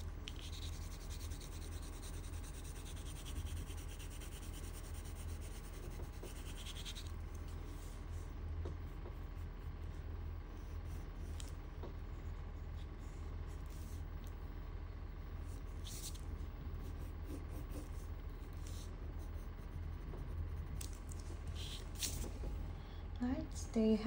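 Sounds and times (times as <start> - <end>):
colored pencil scratching on paper: 0.0 - 7.1, 8.8 - 11.4, 15.4 - 20.8, 21.5 - 22.3
steady low hum: 0.0 - 24.0.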